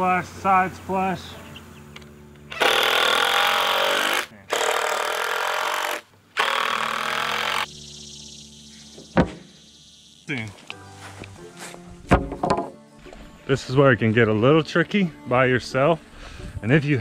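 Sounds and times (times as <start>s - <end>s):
power drill driving screws: 2.5s - 7.7s
sharp thump: 9.0s - 9.5s.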